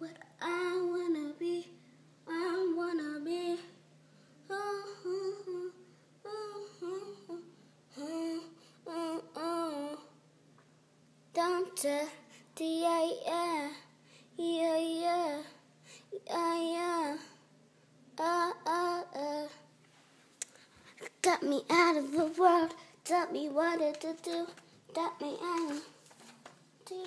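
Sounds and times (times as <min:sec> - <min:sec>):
girl humming a tune: 0:04.5 - 0:10.2.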